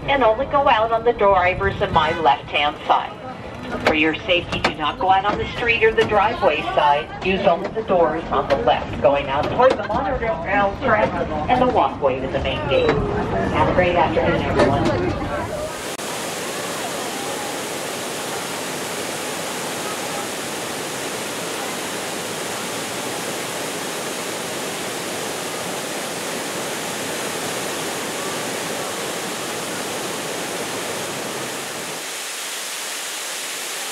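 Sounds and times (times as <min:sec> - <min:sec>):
water rushing over rocks: 0:15.6 - 0:33.9.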